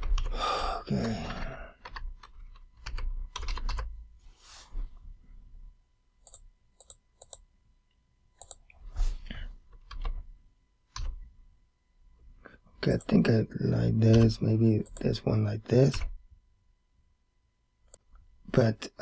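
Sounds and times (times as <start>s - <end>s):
computer keyboard typing: 1.3s - 3.9s, 6.2s - 7.4s, 8.4s - 8.6s.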